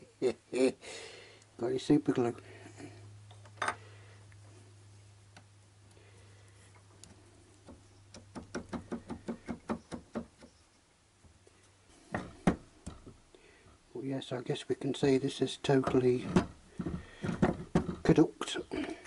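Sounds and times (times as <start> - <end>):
sharp knocks: 7.7 - 10.5, 12.1 - 13.2, 15.9 - 18.1.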